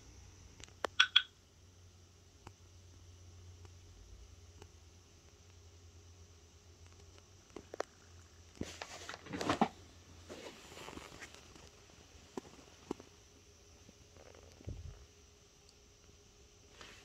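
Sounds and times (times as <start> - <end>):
fabric rustle and phone handling: 8.6 - 13.0.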